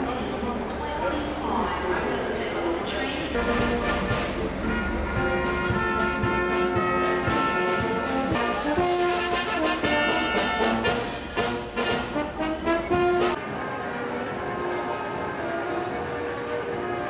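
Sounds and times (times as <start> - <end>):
brass band playing: 3.4 - 17.0.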